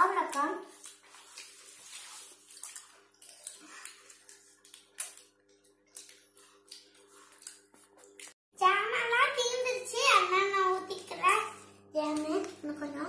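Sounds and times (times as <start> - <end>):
rustling of food on a leaf: 0.7 - 5.0.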